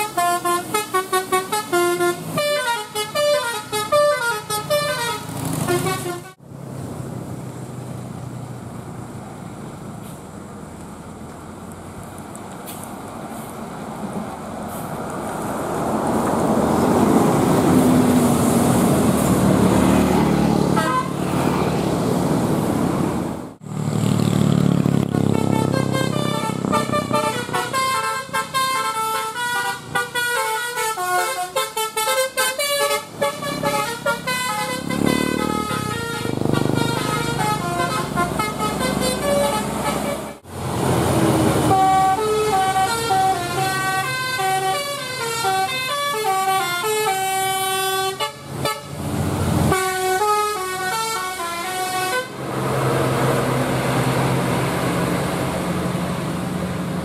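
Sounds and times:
melodic bus horns: 0.0 - 6.4, 19.0 - 21.6, 25.0 - 40.5, 41.5 - 53.3
bus engine: 0.0 - 57.0
traffic noise: 0.0 - 57.0.

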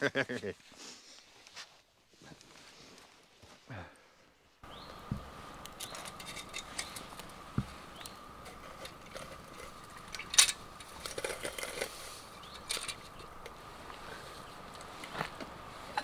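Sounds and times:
faint high hum: 3.7 - 16.0
twig fire crackling: 4.4 - 16.0.

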